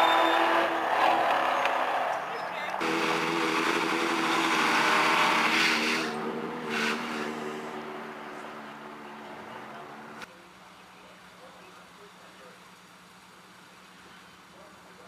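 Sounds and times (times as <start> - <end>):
car engine at high revs: 0.0 - 10.3.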